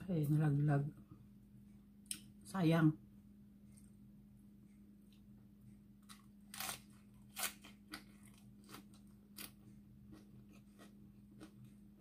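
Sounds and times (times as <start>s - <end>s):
steady low hum: 0.0s - 12.0s
chewing crisp lettuce: 6.0s - 12.0s.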